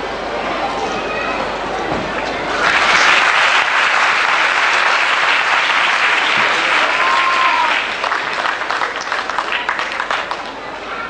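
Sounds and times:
audience applauding: 2.5 - 10.6.

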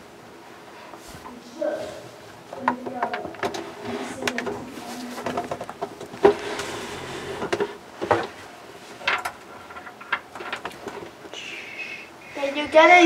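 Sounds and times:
handling clicks knocks and rustles: 2.5 - 6.4, 9.0 - 11.3.

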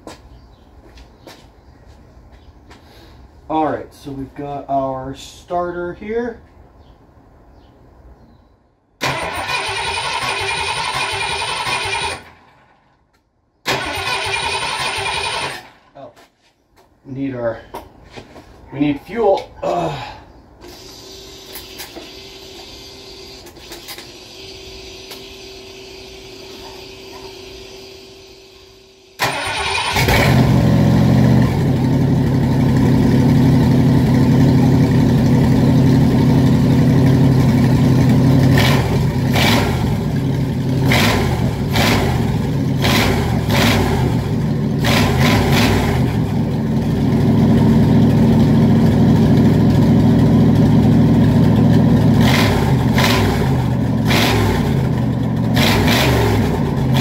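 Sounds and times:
loud vee eight engine revving: 29.3 - 57.0.

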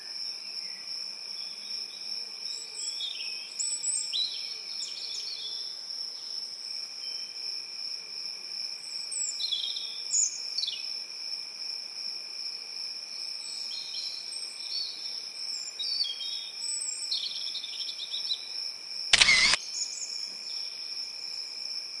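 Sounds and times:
camera shutter click: 19.2 - 19.6.

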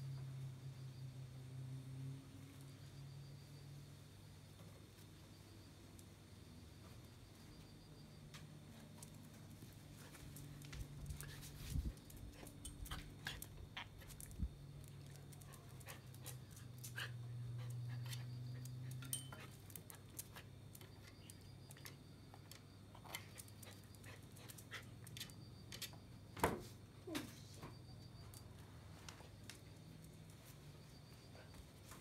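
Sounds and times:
dog panting: 15.4 - 20.2.

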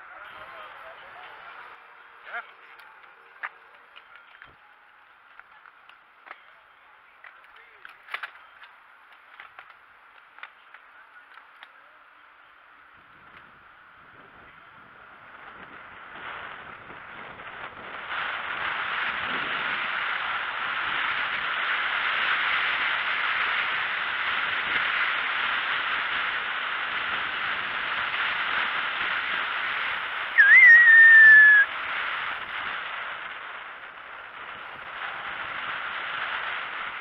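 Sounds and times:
wind on microphone: 13.0 - 37.0
high whistle: 30.4 - 31.7.

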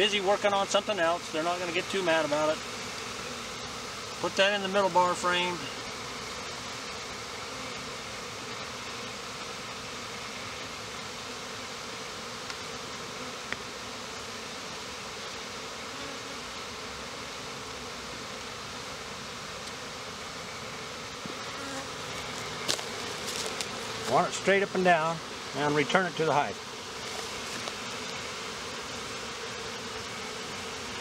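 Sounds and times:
honeybees buzzing: 0.0 - 31.0.

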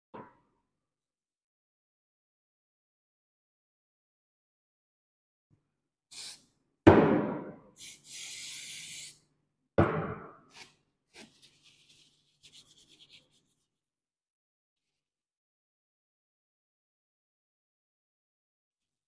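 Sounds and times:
aerosol spray hissing: 6.1 - 6.4, 7.8 - 9.2
loud knock: 6.9 - 7.6
tissue rustling and rubbing: 10.6 - 13.7.

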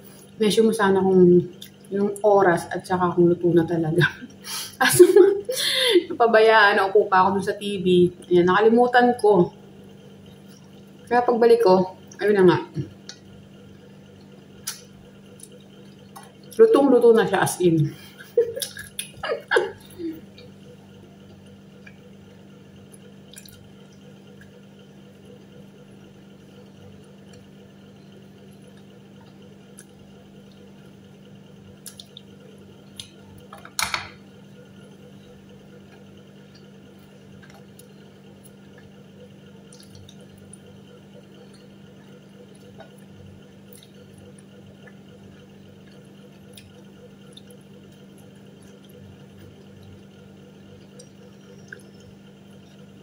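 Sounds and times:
low room hum: 0.0 - 53.0.

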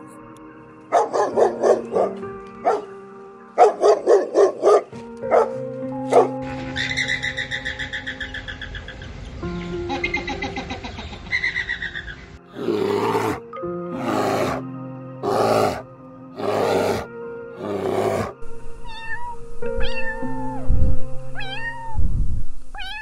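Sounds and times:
background music: 0.0 - 23.0
bear growling: 12.5 - 18.4
cat meowing: 18.8 - 20.6, 21.4 - 22.0, 22.7 - 23.0.

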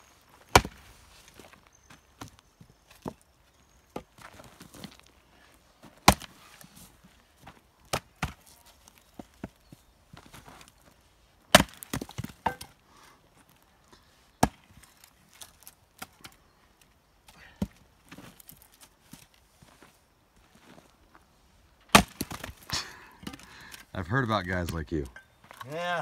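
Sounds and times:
axe chopping log: 0.4 - 0.9, 6.0 - 6.4, 7.9 - 8.5, 11.5 - 12.8, 14.4 - 14.7, 21.9 - 22.6.

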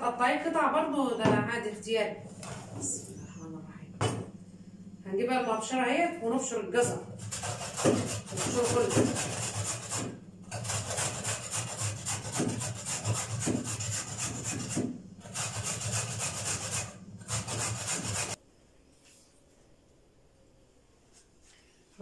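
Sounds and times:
carrots grated on metal grater: 6.8 - 18.4.

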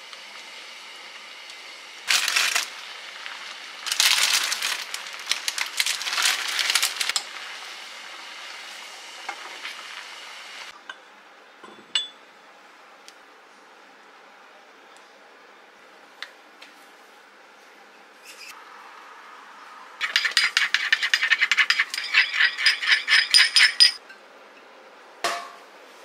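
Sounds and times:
plastic packet crinkling: 2.1 - 2.8, 3.8 - 7.2
glass clink: 11.6 - 12.2, 20.1 - 24.1.

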